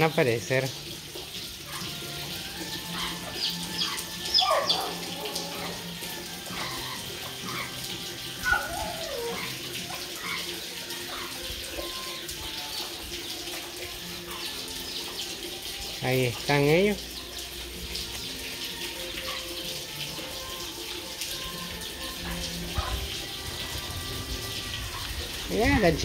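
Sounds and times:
hen calling: 0:01.6 - 0:13.3
chicks peeping: 0:03.0 - 0:05.0.

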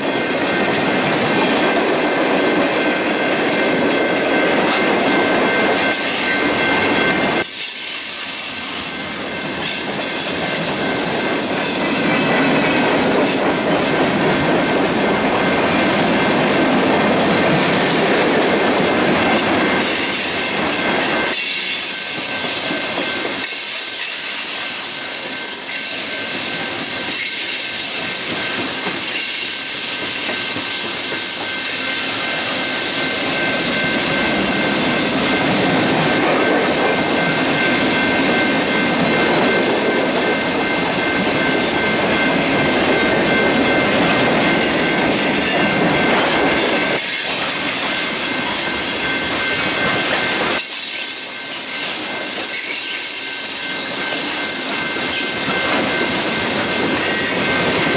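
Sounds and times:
high wheel squeal: 0:00.0 - 0:57.9
steel wheels rumbling on rail: 0:00.0 - 0:57.9.

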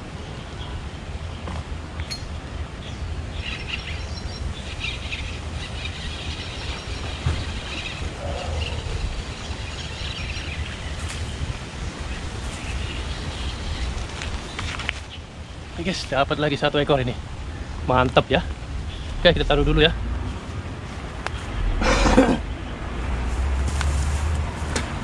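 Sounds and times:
low rumble: 0:17.2 - 0:24.3.

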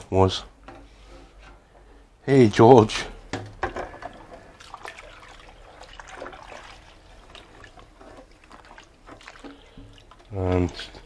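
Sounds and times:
water trickling and dripping: 0:03.9 - 0:11.0.

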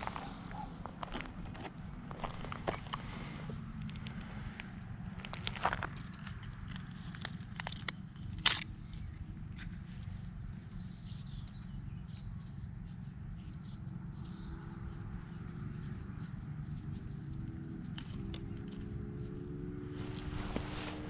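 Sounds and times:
faint rising hum: 0:17.6 - 0:21.0.

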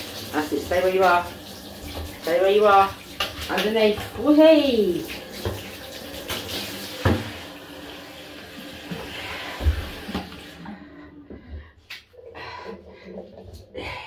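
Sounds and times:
shower head spraying water: 0:00.0 - 0:10.6.

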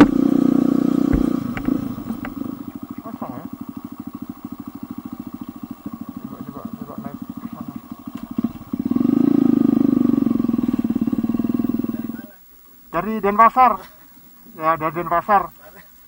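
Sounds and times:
motorcycle engine running: 0:00.0 - 0:12.3.

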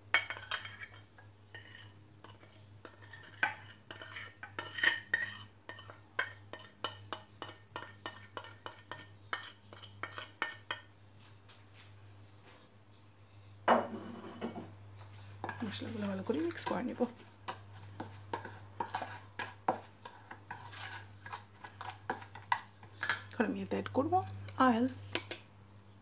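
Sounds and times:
spoon clinking against metal bowl: 0:00.1 - 0:10.9, 0:15.4 - 0:23.4
spoon scraping ceramic plate: 0:00.2 - 0:10.9, 0:13.8 - 0:14.7, 0:15.4 - 0:23.4.

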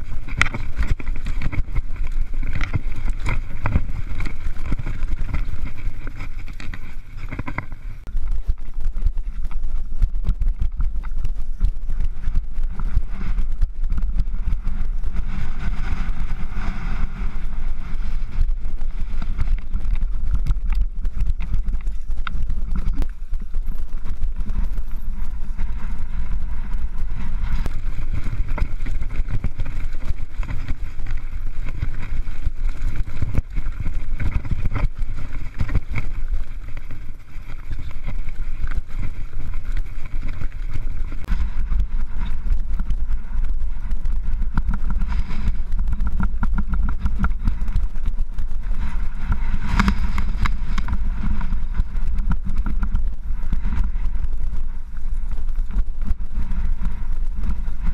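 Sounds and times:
mountain bike rattling over rocks: 0:00.0 - 0:57.9
wind rumbling on microphone: 0:00.0 - 0:57.9.

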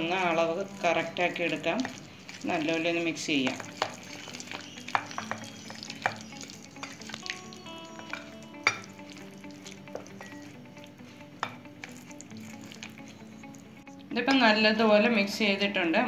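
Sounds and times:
spatula stirring thick batter: 0:00.0 - 0:13.7
spatula tapping glass bowl: 0:03.4 - 0:07.4, 0:08.0 - 0:09.2, 0:09.9 - 0:10.5, 0:11.4 - 0:12.0.

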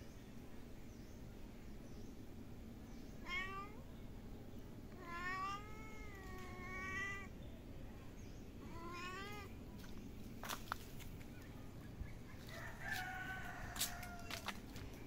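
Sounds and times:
cat meowing: 0:03.2 - 0:03.8, 0:05.0 - 0:07.3, 0:08.7 - 0:09.5.

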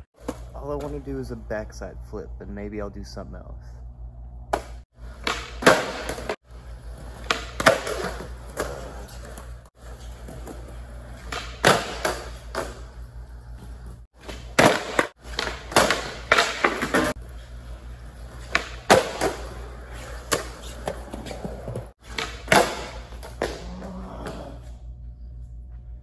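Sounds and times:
steady low hum: 0:00.0 - 0:16.4, 0:17.0 - 0:26.0
skateboard wheels rolling: 0:05.0 - 0:24.7.

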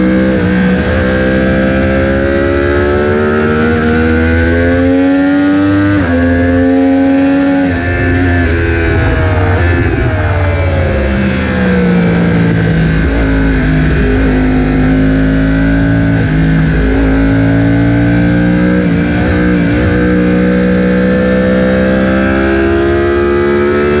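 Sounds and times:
motorcycle engine under throttle: 0:00.0 - 0:24.0
wind rush: 0:07.5 - 0:17.3.

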